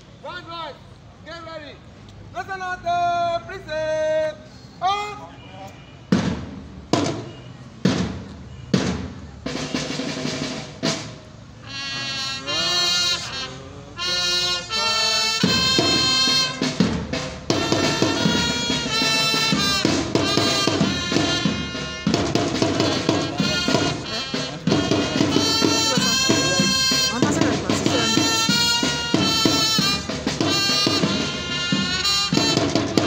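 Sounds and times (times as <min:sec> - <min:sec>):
loud drum strokes: 0:06.1 - 0:33.0
parade band tune: 0:06.1 - 0:33.0.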